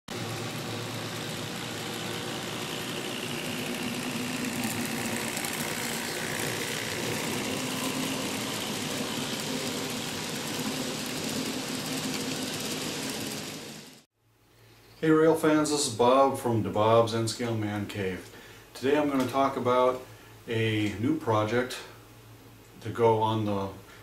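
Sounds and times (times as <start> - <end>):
model train running on track: 0.1 - 14.0
faint motor whine: 0.1 - 16.0.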